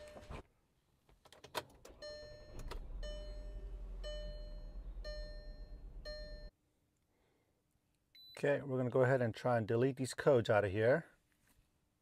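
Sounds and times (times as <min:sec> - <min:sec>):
car warning chime dinging: 0:01.9 - 0:06.5
low steady rumble: 0:02.2 - 0:06.5.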